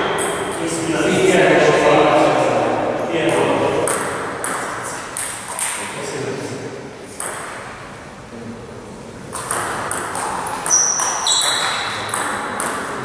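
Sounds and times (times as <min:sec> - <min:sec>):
table tennis ball clicking: 0:09.3 - 0:13.0
high squeaks: 0:10.2 - 0:12.2.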